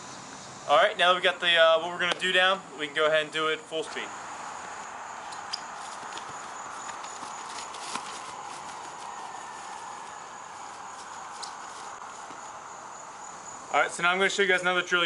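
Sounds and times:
high-pitched insect trill: 4.0s - 14.6s
footsteps on grass: 4.4s - 13.7s.

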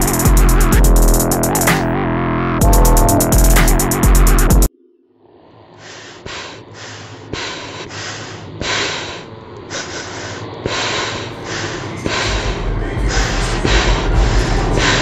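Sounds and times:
person breathing hard: 5.6s - 15.0s.

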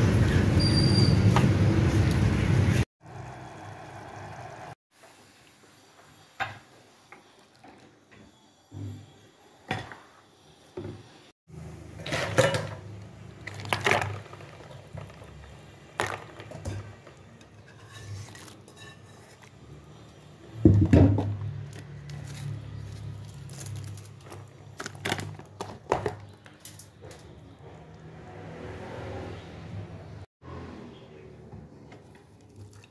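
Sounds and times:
bowl and utensils clinking on pot: 12.0s - 15.3s.

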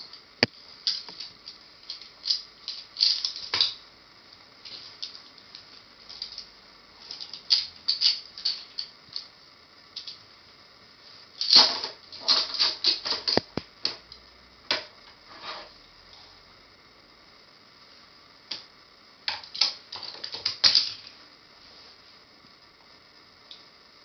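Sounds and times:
toy cars clicking on plastic: 0.4s - 3.8s, 7.1s - 9.3s, 19.3s - 21.1s.

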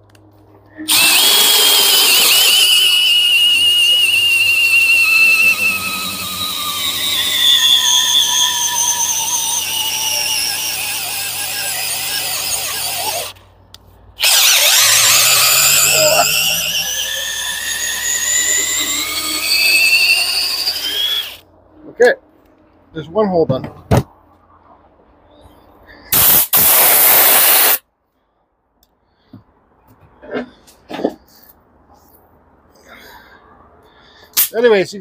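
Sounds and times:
cordless drill boring into wood: 0.9s - 13.4s, 14.2s - 21.4s.

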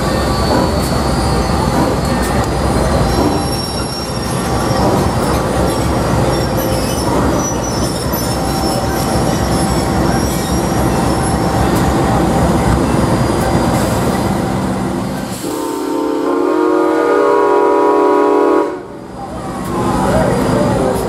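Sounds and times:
freight train rumbling past: 0.0s - 21.0s
train horn chord: 15.4s - 18.9s.

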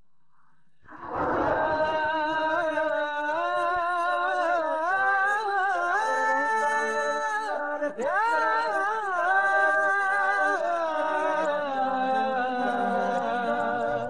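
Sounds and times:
wordless voice humming: 0.9s - 3.7s.

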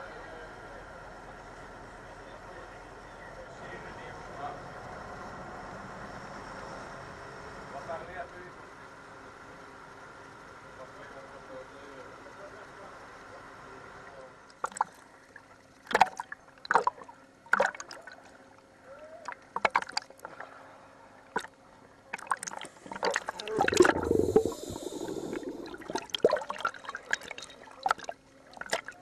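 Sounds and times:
underwater clicks and knocks: 19.5s - 20.3s
scuba exhalation bubbling: 22.2s - 28.9s.

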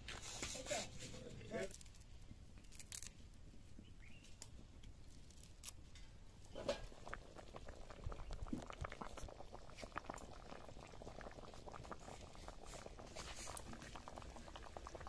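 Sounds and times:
herb leaves being torn by hand: 2.6s - 3.1s
pot bubbling at the boil: 4.6s - 15.0s.

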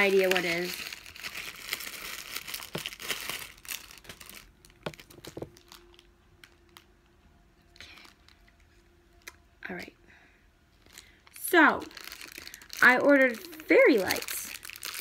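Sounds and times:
plastic mailer bag crinkling: 0.0s - 6.9s, 10.8s - 15.0s.

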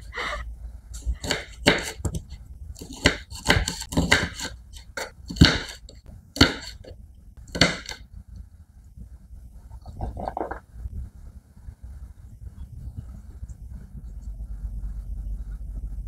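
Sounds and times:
knife chopping on wooden board: 1.2s - 6.8s, 7.5s - 8.0s.

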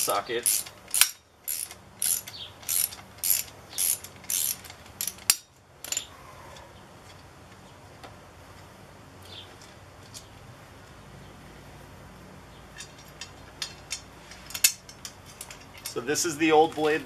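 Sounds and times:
ratchet wrench clicking: 0.0s - 6.0s.

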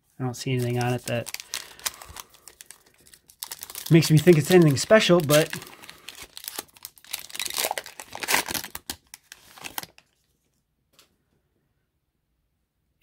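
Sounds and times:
wrapper crinkling and tearing: 0.4s - 10.2s.

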